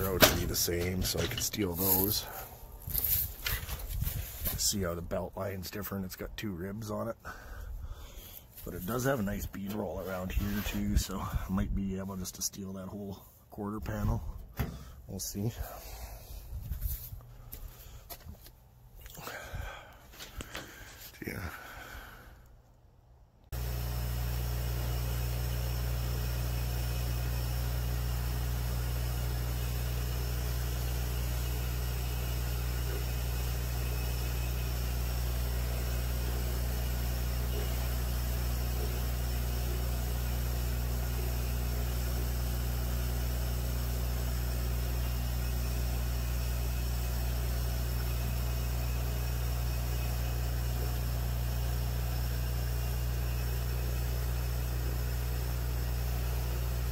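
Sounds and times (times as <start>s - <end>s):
aquarium air pump humming: 23.6s - 56.9s.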